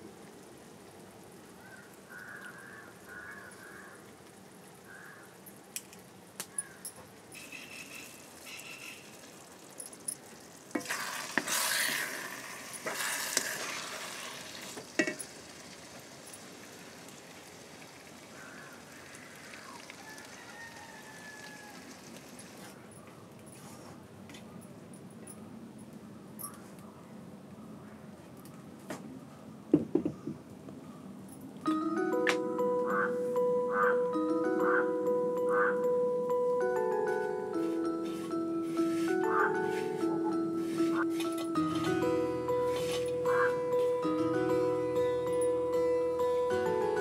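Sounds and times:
food sizzling in oil: 7.4 - 22.7.

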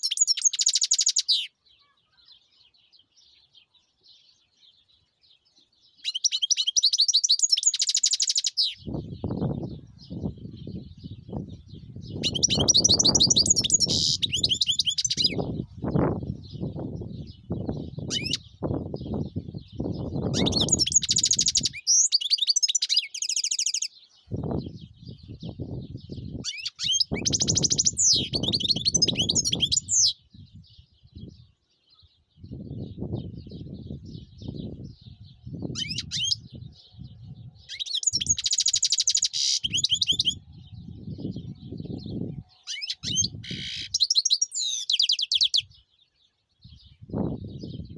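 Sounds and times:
low gusting rumble: 8.8 - 14.0, 15.3 - 20.6, 40.4 - 42.4, 46.7 - 47.9
goldfinch twittering trills: 12.2 - 15.4, 18.1 - 18.5, 20.3 - 23.9.

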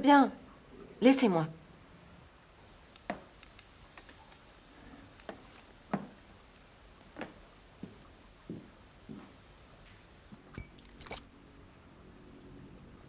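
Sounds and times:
light sharp clicks and taps: 2.9 - 11.2.

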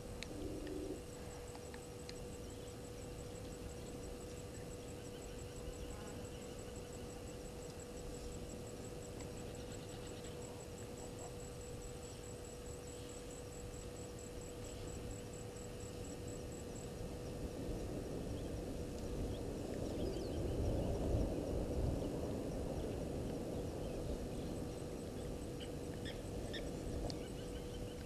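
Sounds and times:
steady hum: 0.0 - 28.0
faint bird chirps: 2.0 - 8.4, 23.8 - 28.0
low rumbling noise: 11.8 - 28.0.

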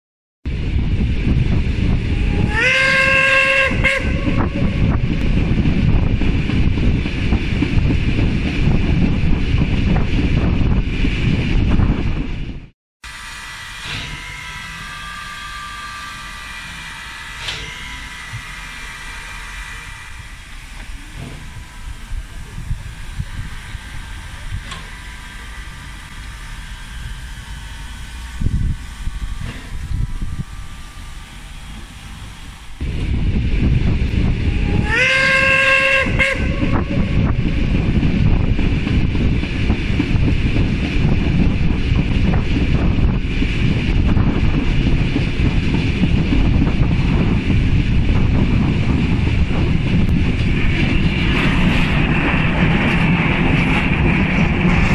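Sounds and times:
steam locomotive hissing: 0.6 - 11.6, 13.1 - 54.9
train carriages on rails: 0.6 - 12.4, 13.1 - 54.9
steam whoosh: 13.1 - 54.9.

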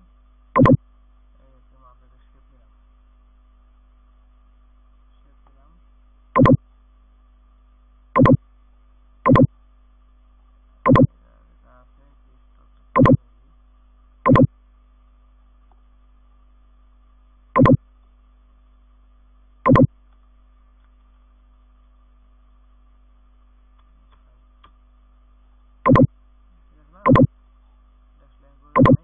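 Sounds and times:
faint steady hum: 0.0 - 29.0
short pitched beeps: 0.6 - 0.8, 6.4 - 6.6, 8.2 - 8.4, 9.3 - 9.5, 10.9 - 11.1, 13.0 - 13.2, 14.3 - 14.5, 17.6 - 17.8, 19.7 - 19.9, 25.9 - 26.1, 27.1 - 27.3, 28.8 - 29.0.

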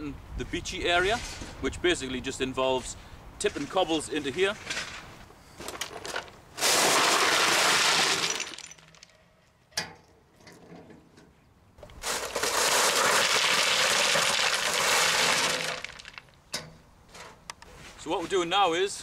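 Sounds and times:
stones clattering from wheelbarrow: 3.5 - 9.1, 11.9 - 16.3.

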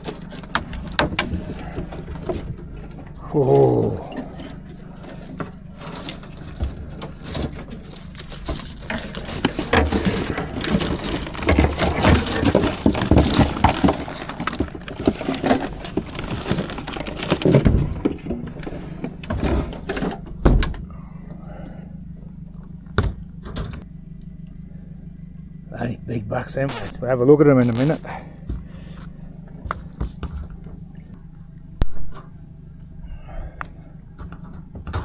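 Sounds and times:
wire crab pot rattling and clanking: 4.3 - 18.8.

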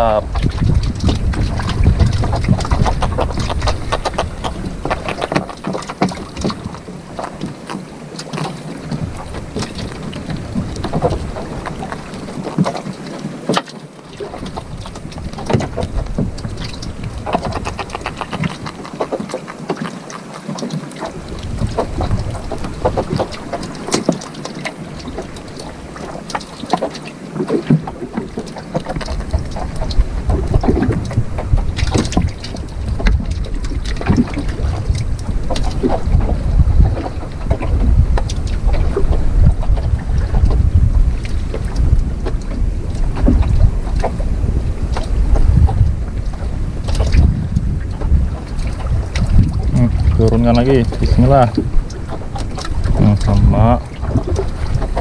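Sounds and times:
clicks and knocks in wooden boat: 0.0 - 55.0
wind buffeting microphone: 0.0 - 55.0.

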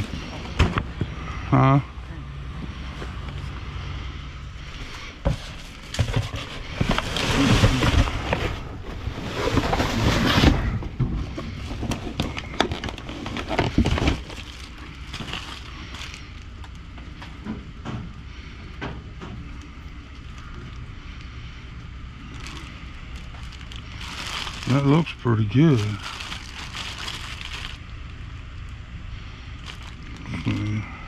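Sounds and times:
steady low hum: 0.0 - 31.0
cardboard scraping: 5.2 - 16.2
plastic crinkling: 11.3 - 16.9, 22.2 - 28.8, 29.5 - 30.9.

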